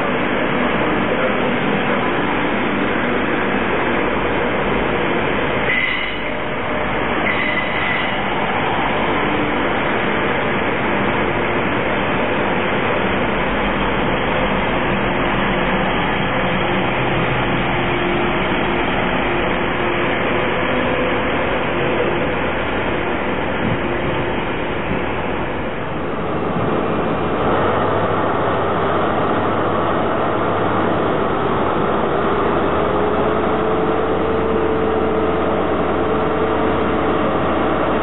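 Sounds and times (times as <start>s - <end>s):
diesel train rumbling past: 0.0s - 38.0s
high-pitched wheel squeals: 5.7s - 6.4s, 7.2s - 8.3s.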